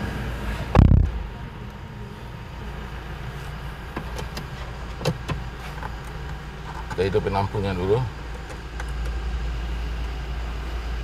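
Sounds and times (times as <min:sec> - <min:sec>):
steady low hum: 0:00.0 - 0:11.0
car door shutting thump: 0:03.9 - 0:05.5.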